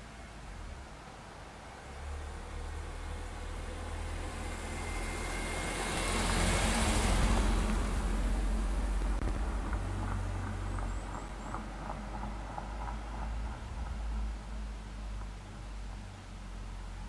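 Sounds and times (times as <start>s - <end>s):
vehicle passing: 0.4s - 17.0s
low rumble: 1.6s - 17.0s.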